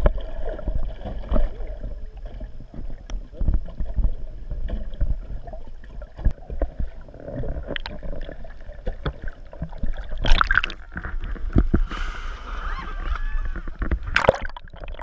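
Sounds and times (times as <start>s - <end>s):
muffled underwater rumble: 0.0s - 15.0s
loud water splash: 14.1s - 15.0s.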